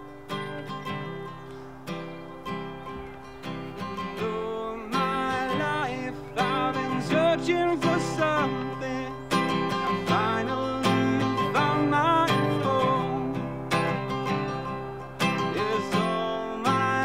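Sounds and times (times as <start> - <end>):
acoustic guitar strumming: 0.0 - 17.0
man singing: 3.9 - 17.0.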